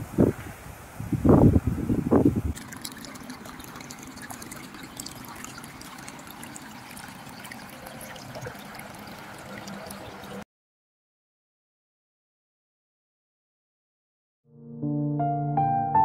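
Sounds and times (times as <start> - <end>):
wind rumble on microphone: 0.0 - 2.6
water trickling with small splashes: 2.5 - 10.4.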